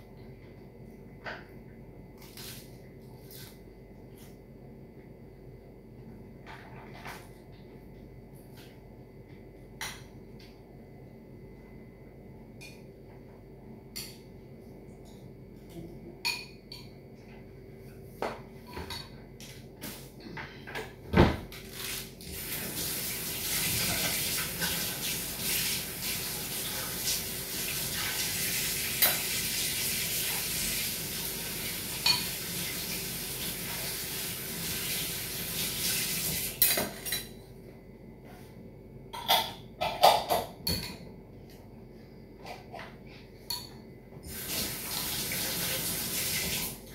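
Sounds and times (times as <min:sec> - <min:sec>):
dishes and cutlery clinking: 0:16.2 - 0:17.0, 0:32.0 - 0:32.4, 0:39.2 - 0:41.1
kitchen tap running: 0:21.7 - 0:36.6, 0:44.3 - 0:46.9.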